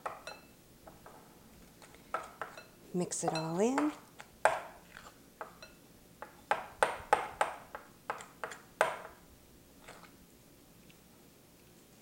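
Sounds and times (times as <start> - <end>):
utensil clinking against glass bowl: 0.0 - 0.5, 2.1 - 4.7, 5.4 - 5.8.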